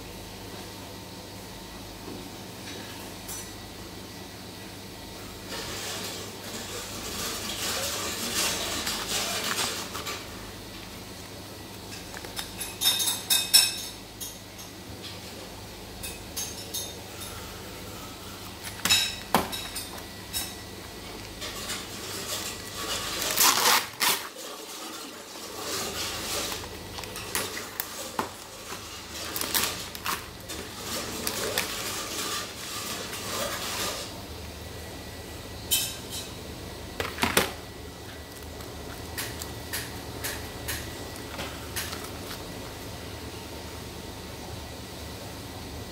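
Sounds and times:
plastic film crinkling: 6.0s - 12.7s, 20.8s - 34.1s, 38.1s - 39.6s.

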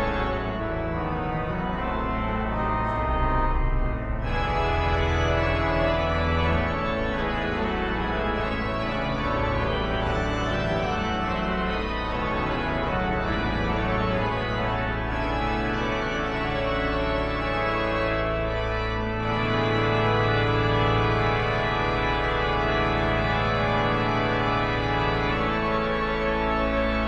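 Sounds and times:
pipe organ playing: 0.0s - 27.0s.

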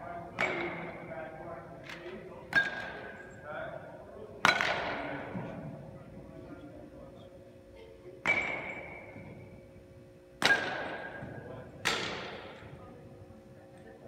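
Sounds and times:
metal bat hitting ball: 4.4s - 5.0s, 8.3s - 9.0s, 10.4s - 11.2s, 11.8s - 12.5s.

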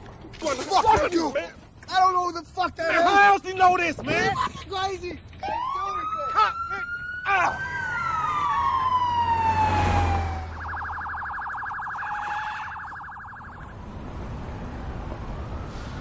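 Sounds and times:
police siren wailing and yelping: 5.4s - 16.0s
low vehicle rumble: 6.8s - 16.0s.

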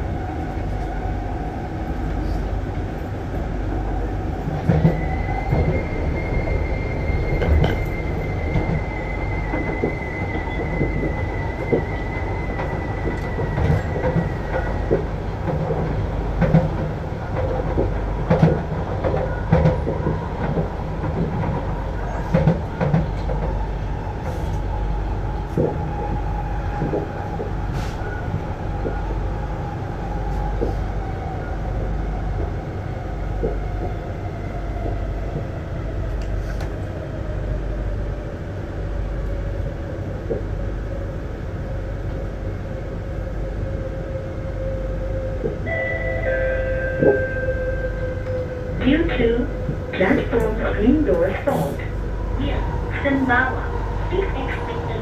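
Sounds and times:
train wheels rumbling: 0.0s - 55.0s.

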